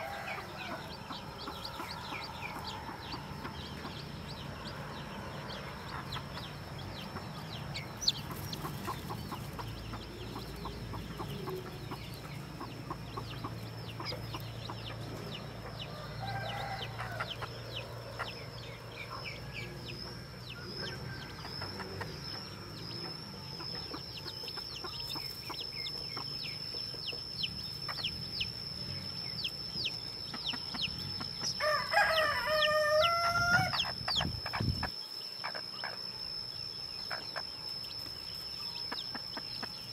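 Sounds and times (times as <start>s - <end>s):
rooster crowing: 0.0s - 3.4s, 15.8s - 18.0s, 31.5s - 34.0s
chicks peeping: 0.0s - 39.9s.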